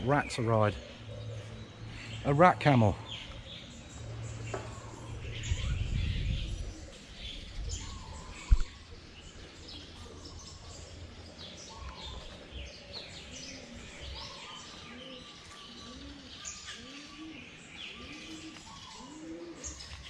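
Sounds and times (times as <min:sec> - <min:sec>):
small birds chirping: 0:00.0 - 0:20.0
low rumble: 0:03.3 - 0:09.4.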